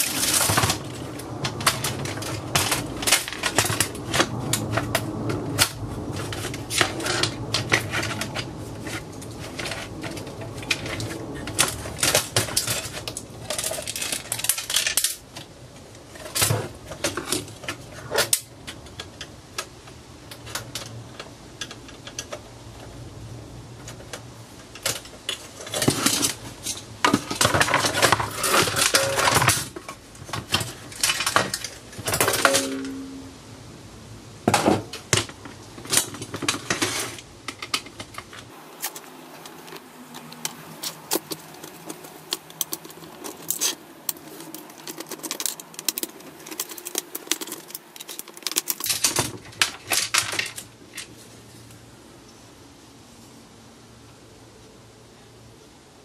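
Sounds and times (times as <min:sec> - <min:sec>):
metal parts clattering on wood: 0:00.0 - 0:15.5, 0:24.8 - 0:33.2, 0:34.5 - 0:51.1
screws being turned out: 0:38.8 - 0:49.4.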